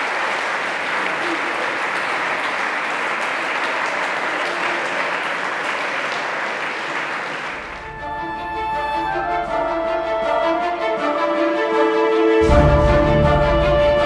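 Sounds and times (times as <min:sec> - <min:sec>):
audience applauding: 0:00.0 - 0:10.7
theme music: 0:07.7 - 0:14.0.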